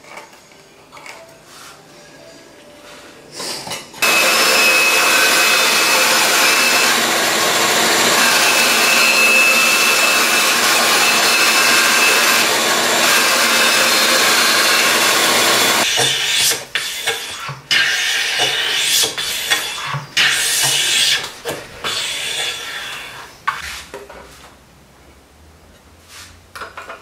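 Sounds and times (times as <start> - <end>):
bandsaw cutting wood: 4.0 - 19.2.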